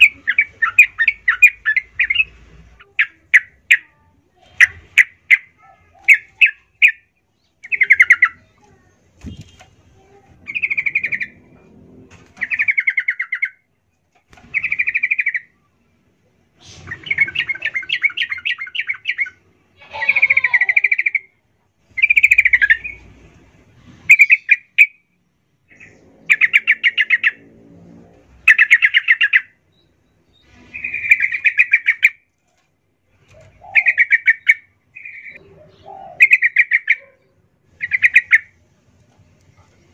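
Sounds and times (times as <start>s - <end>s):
bulbul chattering calls: 33.6s - 37.1s, 37.8s - 38.5s.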